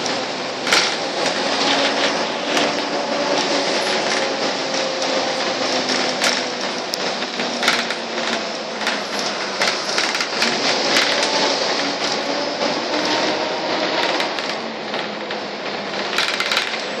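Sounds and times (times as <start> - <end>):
interior fittings rattling: 0.0 - 12.2, 15.9 - 17.0
bus engine and road noise: 0.0 - 17.0.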